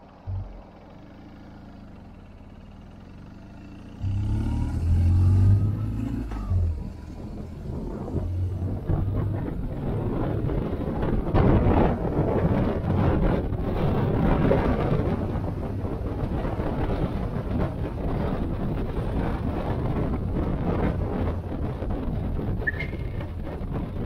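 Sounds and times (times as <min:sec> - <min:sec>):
motorcycle engine accelerating: 0:00.0 - 0:24.0
wind buffeting microphone: 0:04.7 - 0:24.0.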